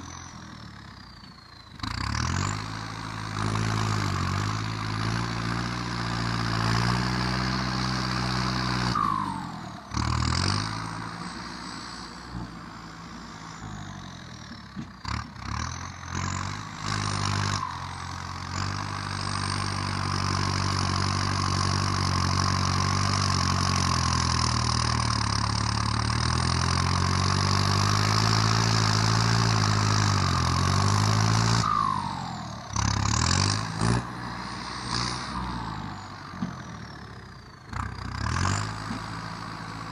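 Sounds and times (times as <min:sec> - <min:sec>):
tractor diesel engine running hard: 0:00.0 - 0:39.9.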